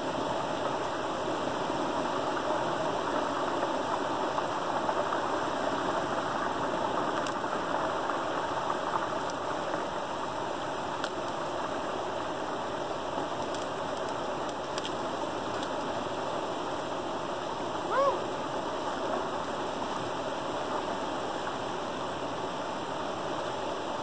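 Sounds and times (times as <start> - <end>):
water rushing into small waterfall: 0.0 - 24.0
faint clicks: 13.4 - 15.9.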